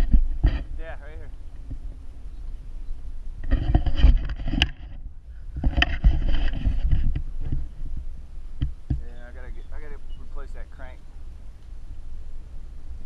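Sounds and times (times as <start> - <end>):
bicycle rattling over rough paving: 3.4 - 11.0.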